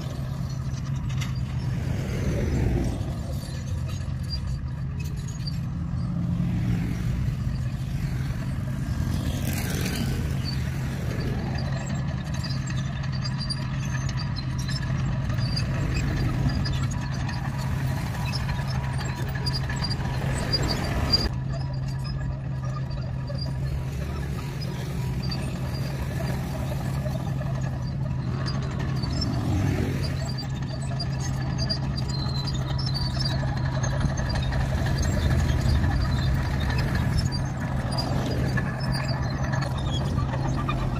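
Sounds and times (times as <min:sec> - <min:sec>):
bulldozer diesel engine droning: 0:00.0 - 0:40.9.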